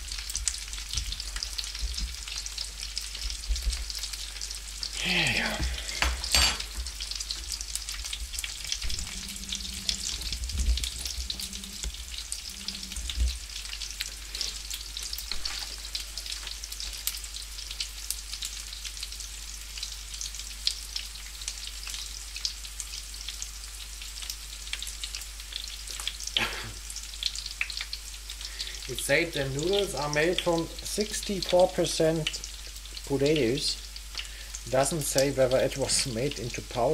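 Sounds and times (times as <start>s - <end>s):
food sizzling in frying pan: 0.0s - 36.9s.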